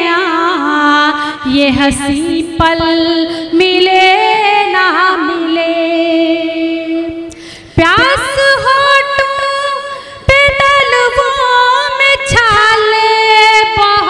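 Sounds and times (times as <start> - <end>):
woman singing into a microphone: 0.0 - 14.0.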